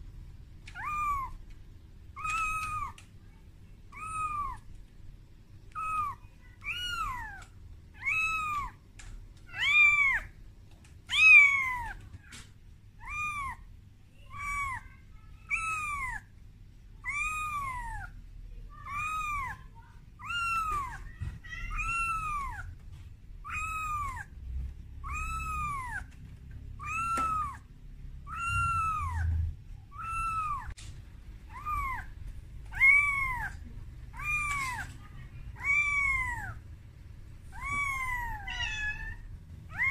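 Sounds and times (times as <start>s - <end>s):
kitten meowing: 0.6s - 1.5s, 2.2s - 3.0s, 3.9s - 4.7s, 5.7s - 8.8s, 9.5s - 10.3s, 11.1s - 12.4s, 13.0s - 13.6s, 14.3s - 16.3s, 17.0s - 18.1s, 18.8s - 19.6s, 20.2s - 22.8s, 23.4s - 24.3s, 25.0s - 26.2s, 26.8s - 30.8s, 31.5s - 36.6s, 37.5s - 39.9s.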